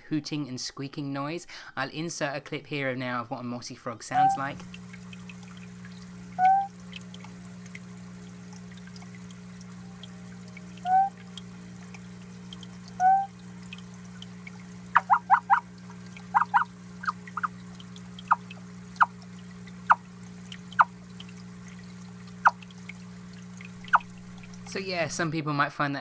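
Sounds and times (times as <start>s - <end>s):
low steady hum: 3.3s - 26.0s
water trickling: 4.0s - 25.4s
frog hooting and squeaking: 4.1s - 4.6s, 6.4s - 6.7s, 10.8s - 11.2s, 13.0s - 13.3s, 14.9s - 15.7s, 16.3s - 17.5s.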